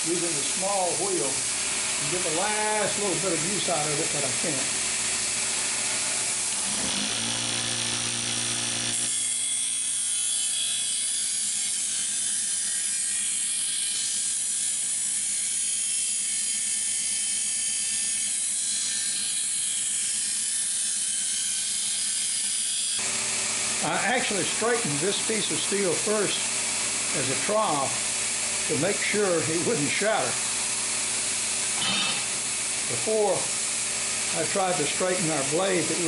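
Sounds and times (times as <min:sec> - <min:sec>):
grinder motor hum: 0:00.0 - 0:09.9, 0:22.9 - 0:36.0
bench grinder grinding steel: 0:00.0 - 0:36.0.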